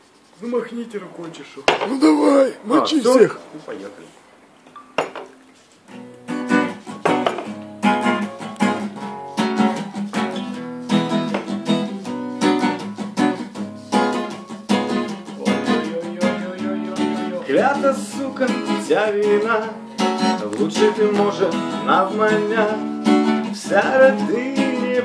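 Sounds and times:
acoustic guitar strumming chords: 5.9 - 25.0.

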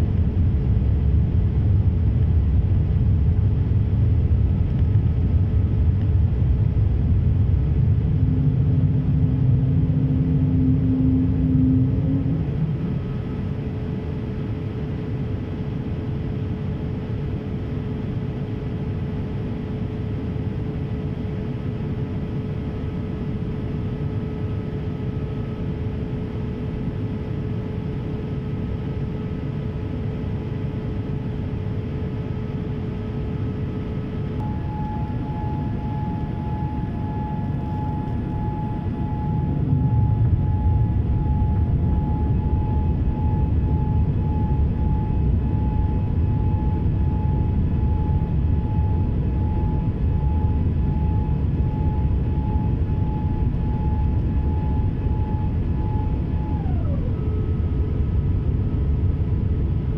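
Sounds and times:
low rumble: 0.0 - 14.6, 34.4 - 59.9
airplane cabin airflow and engines: 0.0 - 59.9
faint whine: 0.0 - 59.9.

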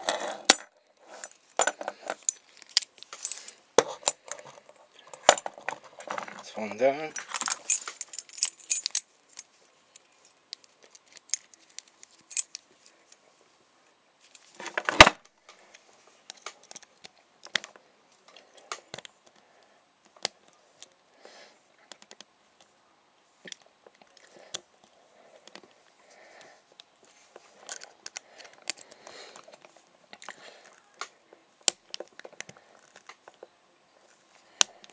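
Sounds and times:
keys jangling: 7.2 - 9.0
lock pick clicks and scrapes: 27.6 - 30.8.

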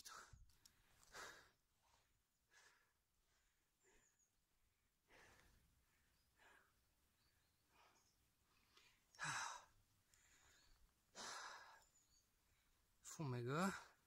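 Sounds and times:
man breathing hard: 8.7 - 11.8.

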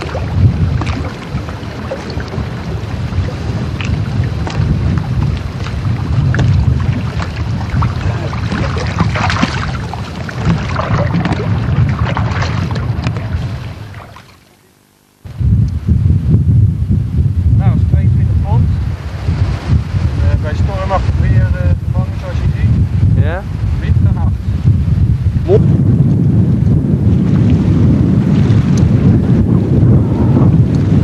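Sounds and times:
wind buffeting microphone: 0.0 - 14.2, 15.2 - 31.0
water splashing and lapping: 0.0 - 14.6.

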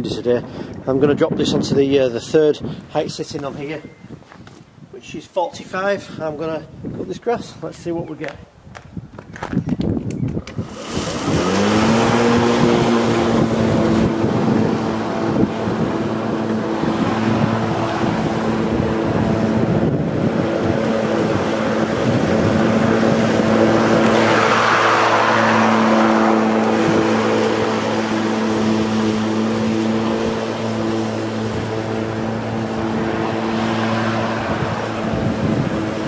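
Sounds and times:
wind noise on microphone: 0.0 - 36.0
electric lawnmower humming: 10.5 - 36.0.

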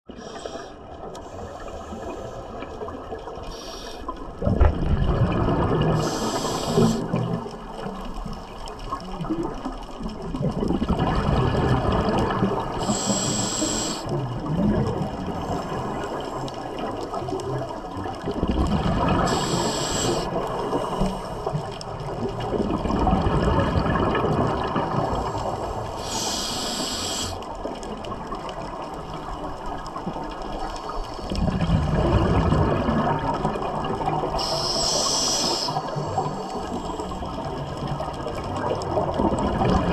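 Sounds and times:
exhaled air bubbling: 0.1 - 39.9
regulator inhale hiss: 0.2 - 2.8, 3.4 - 4.2, 6.0 - 7.2, 12.8 - 14.1, 19.2 - 21.6, 25.4 - 27.4, 34.4 - 37.4.

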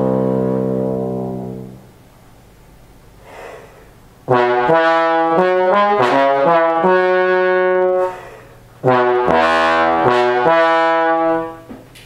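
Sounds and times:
bass trombone playing: 0.0 - 2.0, 4.2 - 11.7
faint noise rush: 2.1 - 4.3.

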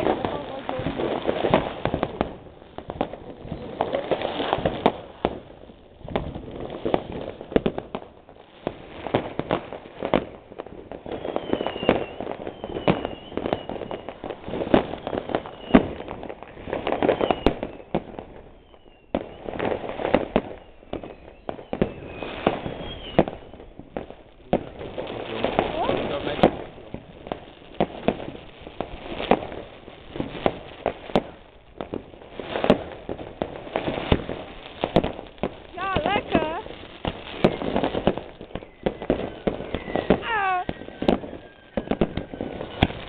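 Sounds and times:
firecracker bangs and crackling: 0.0 - 43.0
rockets whistling: 10.1 - 31.5, 32.2 - 43.0.

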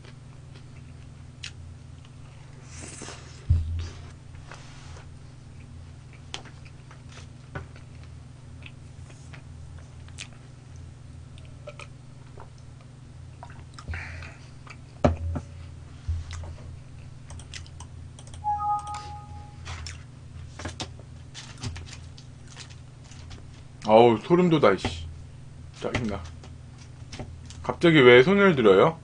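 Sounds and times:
chewing: 5.5 - 13.9, 16.3 - 17.9
two-note electronic tone: 18.4 - 19.6.

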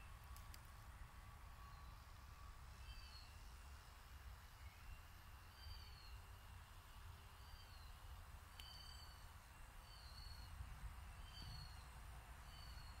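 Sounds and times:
bird whistling: 11.2 - 11.8.

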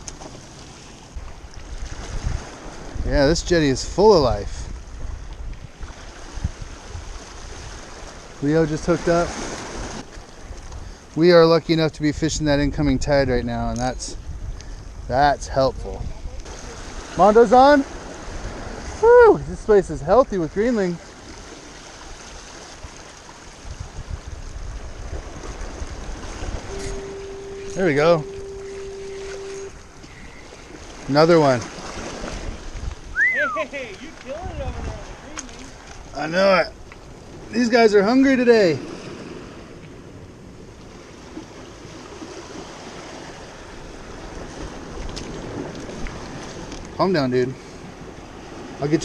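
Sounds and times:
wind buffeting microphone: 0.0 - 11.2, 11.9 - 37.6
seawater washing against rocks: 5.6 - 11.3, 16.3 - 39.9, 40.8 - 49.0.

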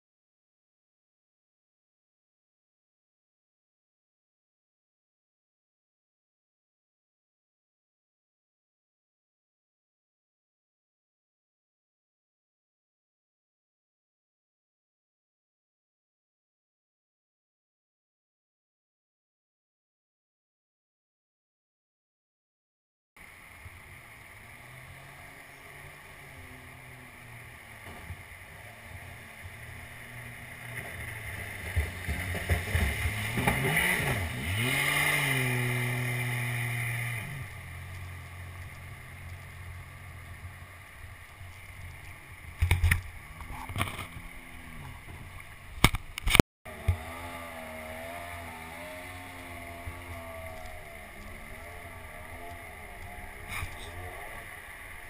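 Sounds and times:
wavering hum: 23.2 - 55.0
jet boat engine revving: 23.5 - 41.1, 42.6 - 45.4, 46.7 - 55.0.

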